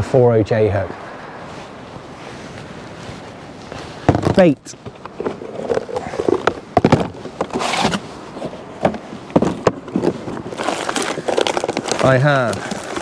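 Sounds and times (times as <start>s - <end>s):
packet crinkly rustle: 10.4s - 13.0s.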